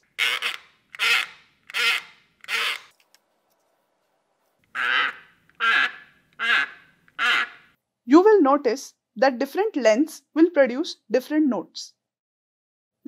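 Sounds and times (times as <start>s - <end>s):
paper cup squawking: 0.1s - 2.9s.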